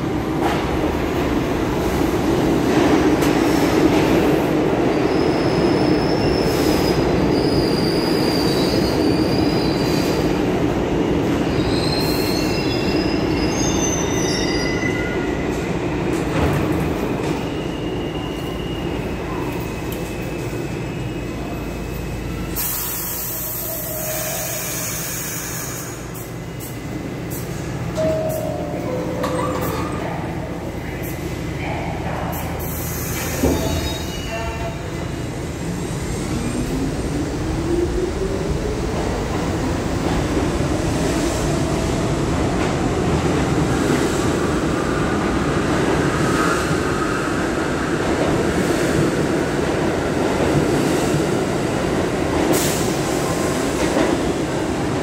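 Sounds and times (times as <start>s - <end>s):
train wheels rumbling on rail: 0.0s - 55.0s
train air hiss: 22.5s - 26.7s, 32.6s - 34.2s.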